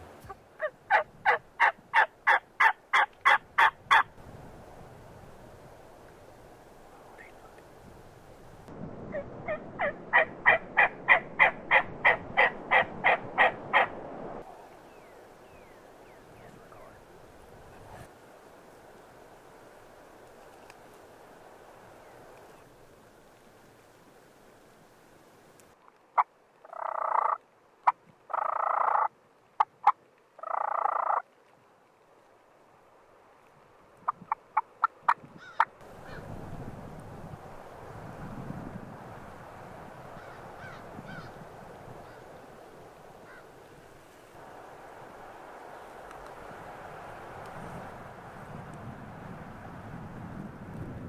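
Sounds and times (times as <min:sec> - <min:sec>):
turkey yelps: 0:00.6 - 0:04.0, 0:09.5 - 0:13.9, 0:26.2 - 0:27.4, 0:28.3 - 0:29.1, 0:29.8 - 0:31.2.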